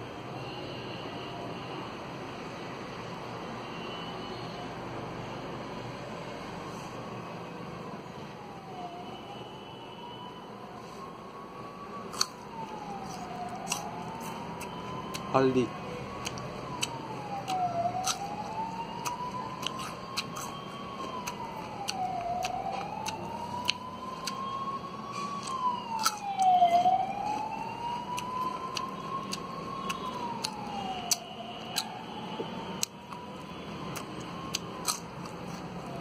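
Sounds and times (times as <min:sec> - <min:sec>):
siren wailing: 0:07.3 - 0:36.0
crunching of root being chewed: 0:11.9 - 0:36.0.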